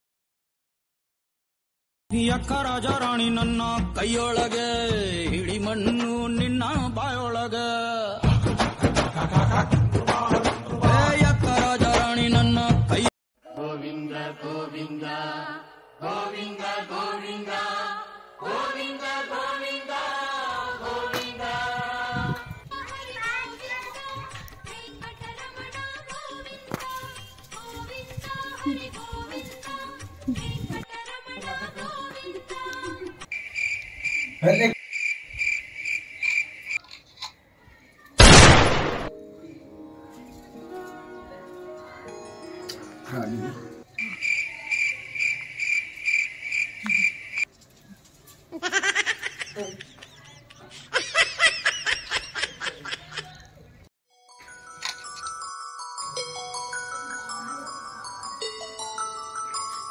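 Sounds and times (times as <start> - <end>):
high chirping pulses: 33.3 - 36.8, 44.0 - 47.4
loud noisy blast: 38.2 - 39.1
faint music: 39.1 - 44.0.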